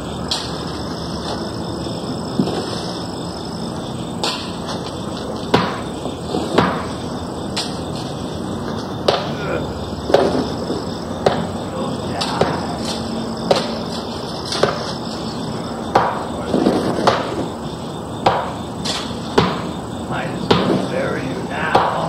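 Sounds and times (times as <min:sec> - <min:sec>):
background hiss: 0:00.0 - 0:22.0
sharp hammer-like blows: 0:04.2 - 0:04.7, 0:05.5 - 0:07.8, 0:09.0 - 0:09.5, 0:11.2 - 0:14.9, 0:15.9 - 0:17.4, 0:18.2 - 0:19.8, 0:20.4 - 0:21.0, 0:21.6 - 0:22.0.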